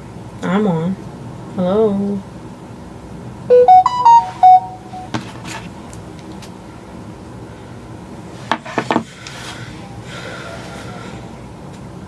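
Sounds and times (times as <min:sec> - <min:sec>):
electronic jingle: 0:03.5 - 0:05.1.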